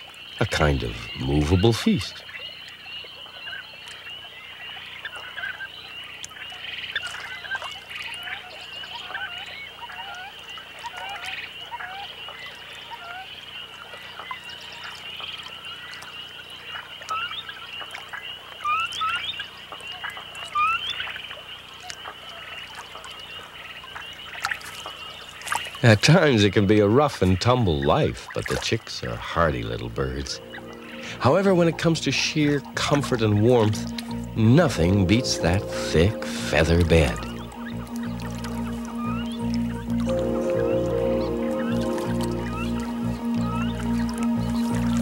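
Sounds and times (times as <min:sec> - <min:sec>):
steady high hiss: 0:29.0 - 0:45.0.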